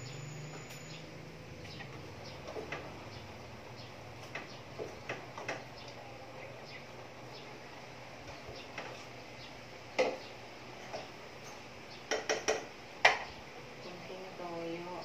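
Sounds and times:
spatula tapping cooking pot: 12.1s - 13.3s.

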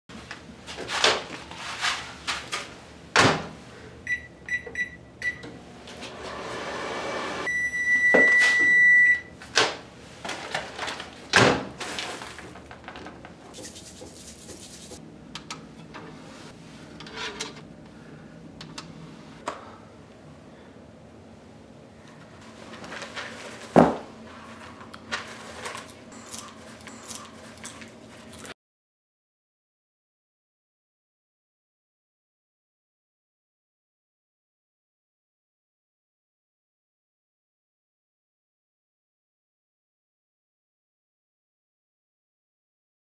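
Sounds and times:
microwave oven running: 2.6s - 11.8s, 15.0s - 28.5s
long beep: 7.5s - 9.3s.

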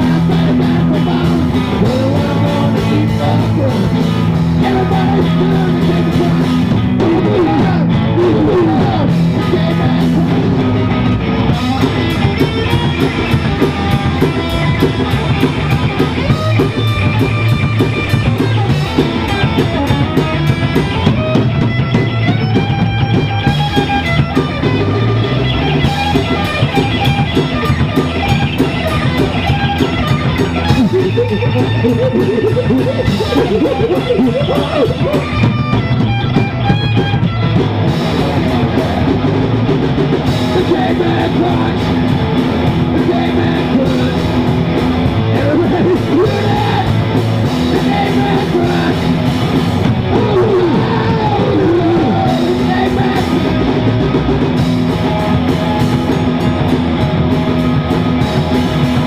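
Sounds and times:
rock band playing: 0.0s - 59.0s.

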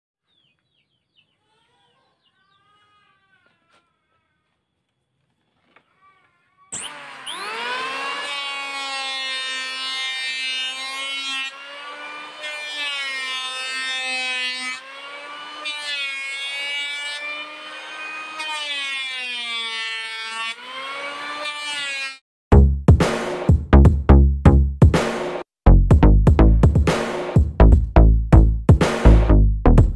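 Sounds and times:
electric planer motor whine: 6.8s - 22.2s.

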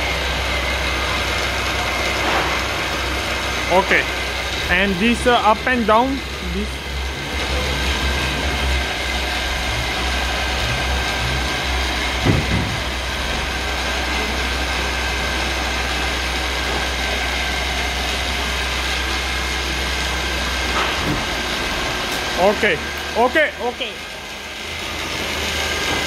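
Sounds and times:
milling machine running: 0.0s - 26.0s
machine clunk: 12.1s - 13.5s.

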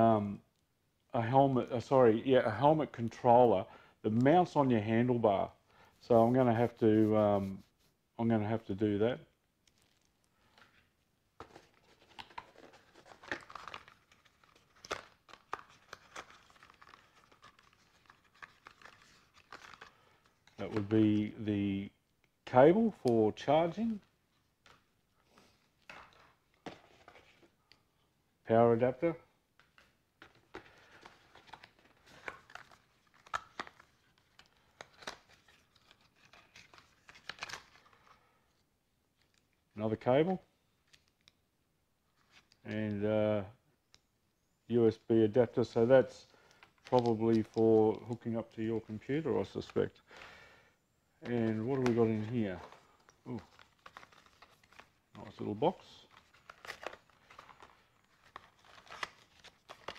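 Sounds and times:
cardboard rustling and crinkling: 9.7s - 20.9s, 24.6s - 27.6s, 29.6s - 38.2s, 51.2s - 59.9s.

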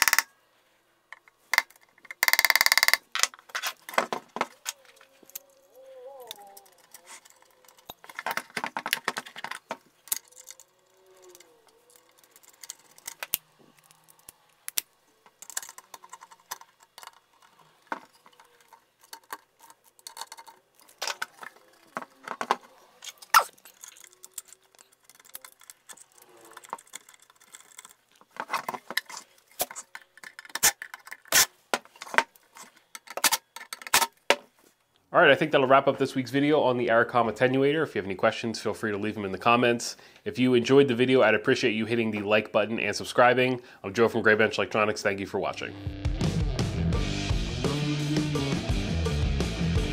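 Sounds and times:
metal case clinks and clatter: 6.3s - 14.2s, 15.4s - 31.3s.

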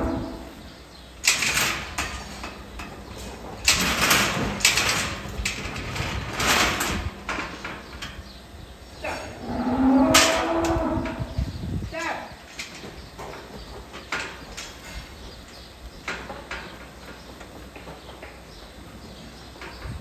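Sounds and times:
cow mooing: 0.0s - 0.5s, 9.1s - 11.4s.

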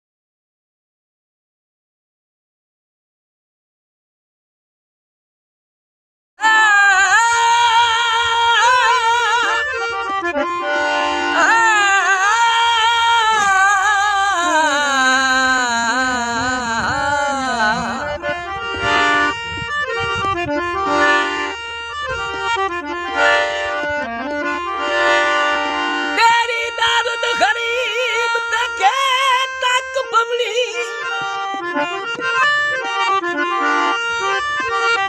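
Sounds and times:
man singing: 6.4s - 9.8s, 11.3s - 18.4s, 26.2s - 31.6s
harmonium chords: 6.4s - 35.0s.

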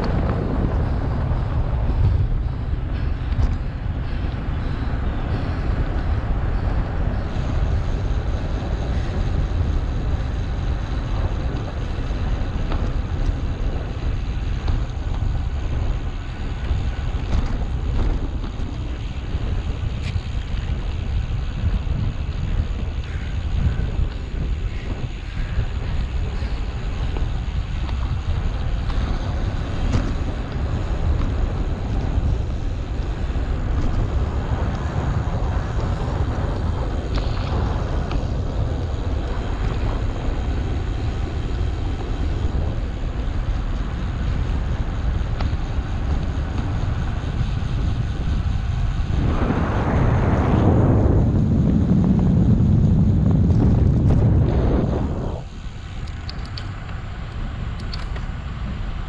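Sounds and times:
wind buffeting microphone: 0.0s - 59.0s
loud rushing sound: 48.9s - 55.8s.

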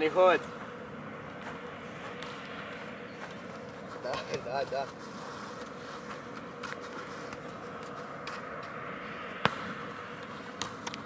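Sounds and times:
steady background hum: 0.0s - 11.0s
football kick thud: 9.4s - 9.7s.

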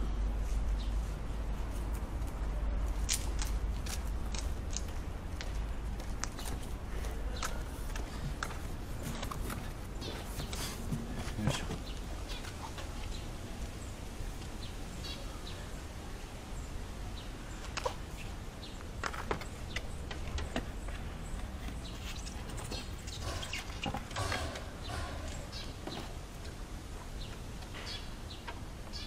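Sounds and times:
steady low rumble: 0.0s - 10.2s.

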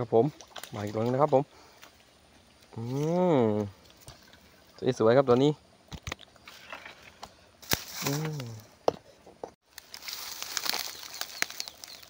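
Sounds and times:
crackling rustle: 6.4s - 8.7s, 9.6s - 12.0s
person speaking: 8.0s - 8.7s.

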